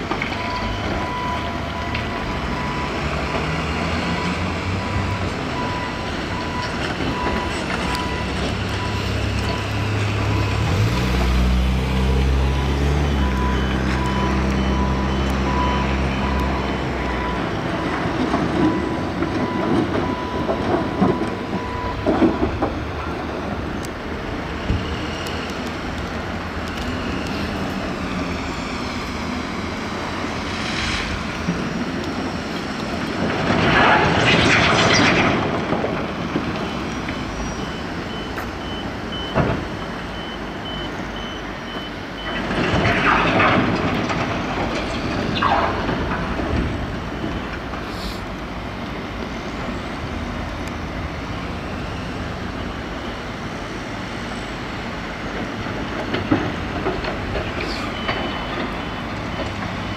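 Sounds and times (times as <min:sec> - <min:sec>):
dump truck engine running: 0:00.0 - 0:59.9
reversing alarm beeping: 0:00.3 - 0:11.0, 0:12.3 - 0:22.6, 0:36.3 - 0:42.8, 0:44.8 - 0:48.1, 0:51.2 - 0:53.4, 0:57.4 - 0:59.9
loud rushing noise: 0:27.0 - 0:36.2.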